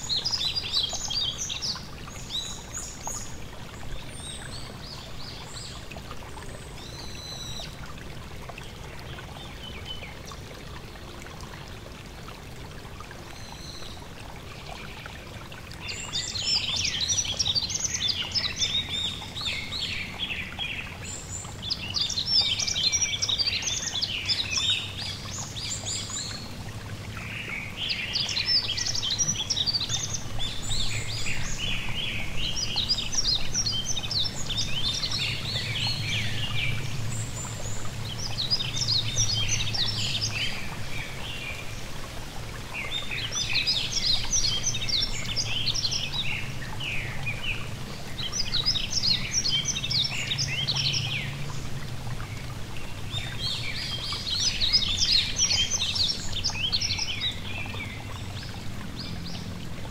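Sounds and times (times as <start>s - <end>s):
stream rushing: 0.0s - 59.9s.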